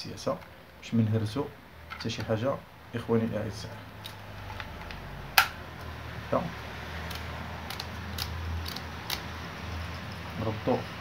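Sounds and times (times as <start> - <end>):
plastic parts clicking together: 7.1 - 9.3.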